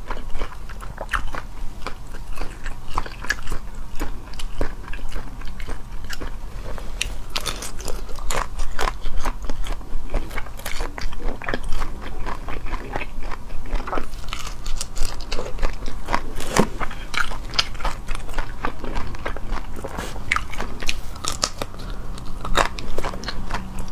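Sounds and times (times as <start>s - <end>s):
chewing: 0.0s - 23.9s
shrimp shells crunching: 14.0s - 21.8s.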